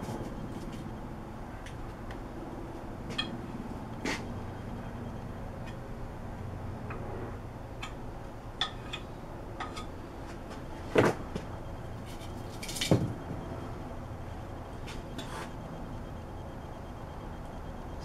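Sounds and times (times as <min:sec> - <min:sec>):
low steady hum: 0:00.0 - 0:18.0
tools clicking and tapping: 0:03.1 - 0:03.4, 0:07.8 - 0:08.0, 0:08.6 - 0:09.9.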